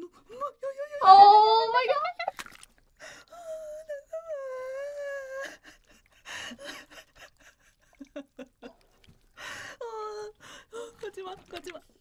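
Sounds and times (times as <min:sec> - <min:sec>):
woman whimpering and wailing: 0:00.0 - 0:02.2, 0:03.3 - 0:06.0, 0:09.8 - 0:10.9.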